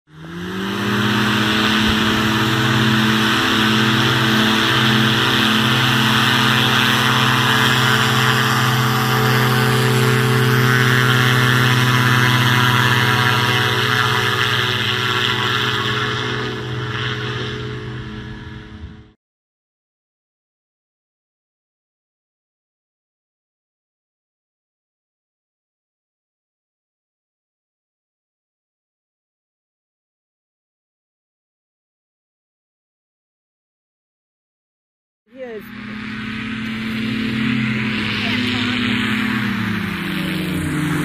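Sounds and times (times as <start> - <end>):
engine and propeller droning: 0.1 - 19.2, 35.3 - 41.0.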